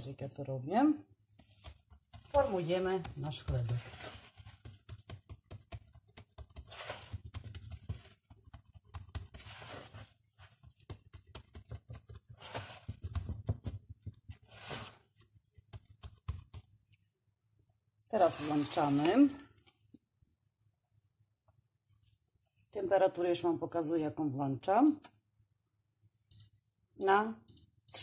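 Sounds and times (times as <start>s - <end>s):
hand smoothing dough: 1.2s - 17.1s, 18.1s - 19.7s.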